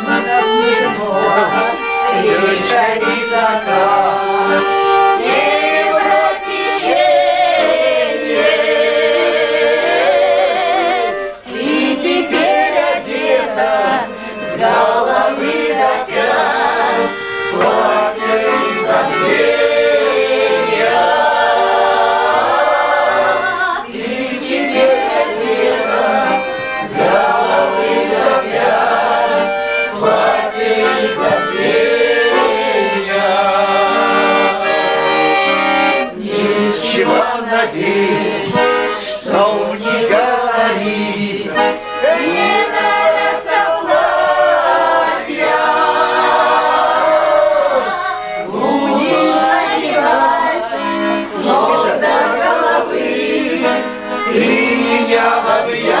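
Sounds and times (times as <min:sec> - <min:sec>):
accordion: 0:00.0 - 0:56.0
group of voices singing: 0:00.0 - 0:56.0.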